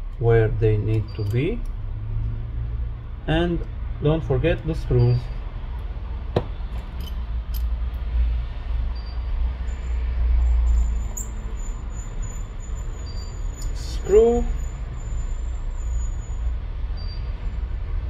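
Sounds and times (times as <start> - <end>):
metal brackets clicking: 0.8 - 1.8, 6.7 - 8.0.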